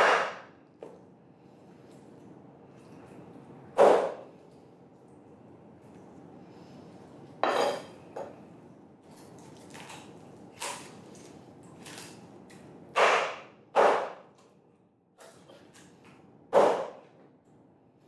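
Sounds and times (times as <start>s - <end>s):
knife chopping on wooden board: 0.0s - 0.9s, 3.8s - 4.2s, 13.0s - 14.3s, 16.5s - 17.0s.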